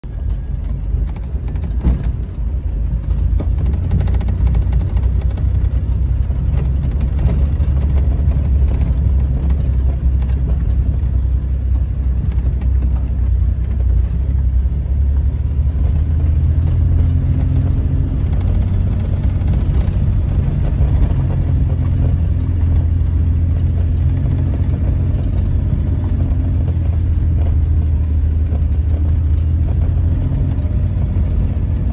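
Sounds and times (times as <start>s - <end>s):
vehicle engine and road rumble: 0.0s - 31.9s
knocks from gravel road: 0.4s - 14.0s.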